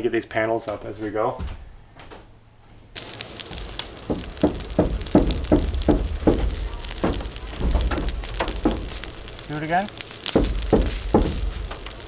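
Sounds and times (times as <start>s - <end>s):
knocks on steel roof panel: 3.5s - 9.4s, 10.2s - 12.0s.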